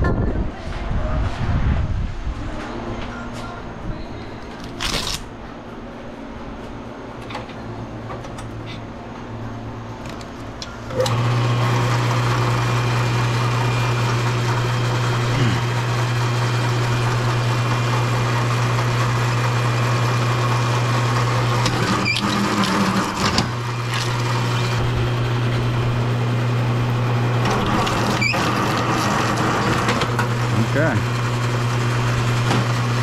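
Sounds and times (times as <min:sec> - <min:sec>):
wire-stripping machine humming: 0:07.0 - 0:33.0.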